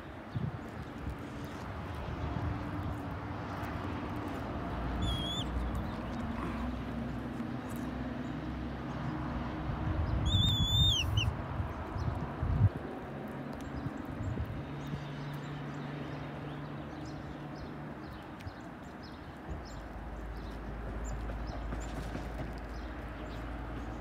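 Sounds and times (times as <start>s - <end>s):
high whistled calls: 5.0s - 5.5s, 10.2s - 11.3s.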